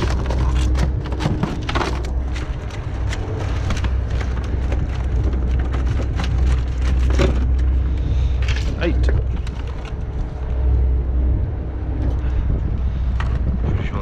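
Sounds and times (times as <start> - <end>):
lobsters clattering in bins: 0.0 - 10.1
boat engine rumbling: 0.0 - 14.0.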